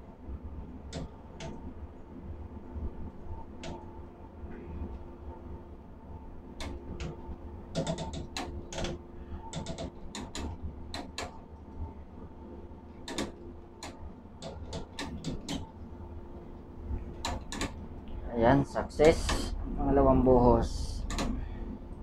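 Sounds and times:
electrical hum: 0:00.0 - 0:22.0
low rumble of machinery: 0:00.0 - 0:22.0
sharp clicks: 0:13.1 - 0:15.7, 0:17.2 - 0:17.8, 0:21.0 - 0:21.4.

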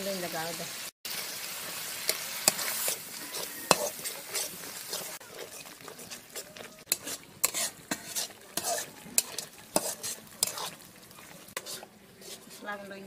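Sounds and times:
paste sizzling in oil: 0:00.0 - 0:13.0
metal spatula scraping a pan: 0:01.2 - 0:13.0.

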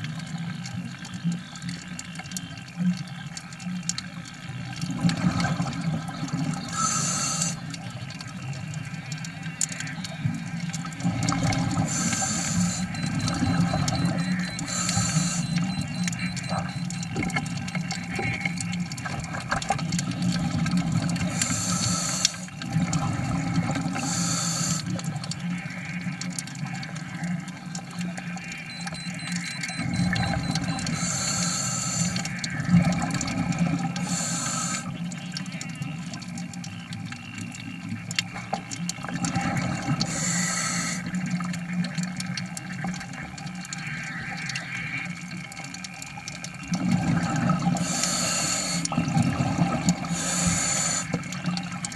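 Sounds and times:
exhaled bubbling underwater: 0:00.0 - 0:51.9
regulator hissing inhale: 0:06.7 - 0:07.6, 0:11.8 - 0:12.9, 0:14.6 - 0:15.6, 0:21.4 - 0:22.5, 0:24.0 - 0:24.9, 0:30.9 - 0:32.3, 0:34.0 - 0:35.0, 0:40.1 - 0:41.1, 0:47.8 - 0:49.0, 0:50.1 - 0:51.2.

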